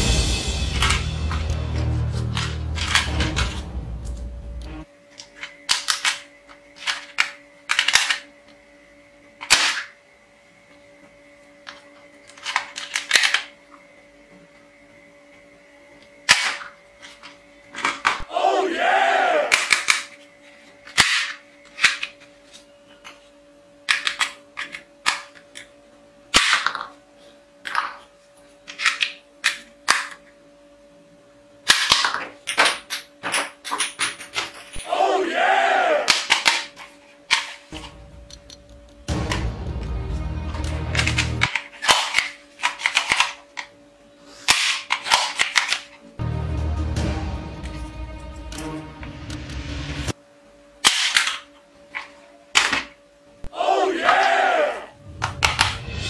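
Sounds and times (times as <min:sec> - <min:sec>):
background music: 0:00.0 - 0:04.9, 0:39.0 - 0:41.5, 0:46.2 - 0:50.1, 0:55.0 - 0:56.0
plastic toy clicks and rattles: 0:05.4 - 0:08.3, 0:44.6 - 0:45.9.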